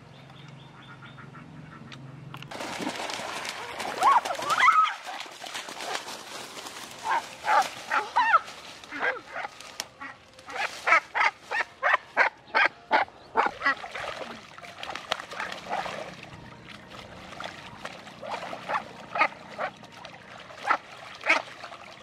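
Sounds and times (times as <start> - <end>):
duck quacking: 7.0 - 13.8, 18.2 - 19.8, 20.6 - 21.6.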